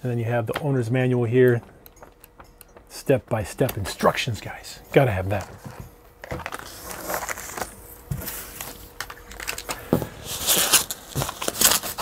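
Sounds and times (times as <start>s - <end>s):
paper and cardboard rustling: 5.3s - 12.0s
plastic wrap crinkling: 5.4s - 12.0s.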